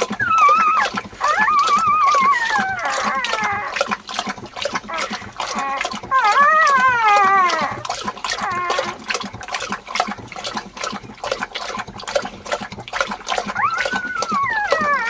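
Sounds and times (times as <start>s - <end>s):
puppies whining: 0.0s - 3.9s, 4.8s - 9.1s, 13.4s - 15.0s
dog lapping food from a bowl: 0.0s - 15.0s.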